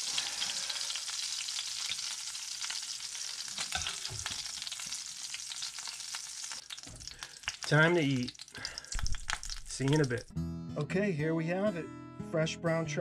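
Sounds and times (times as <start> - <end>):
hot oil sizzling and crackling: 0.0 - 10.3.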